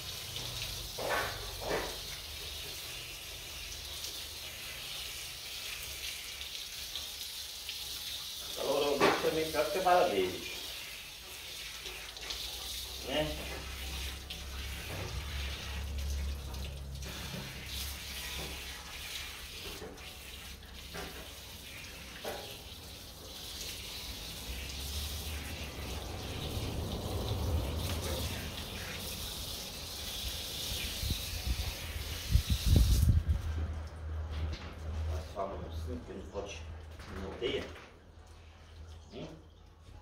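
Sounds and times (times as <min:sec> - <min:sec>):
hose water splashing: 0:00.0 - 0:36.6.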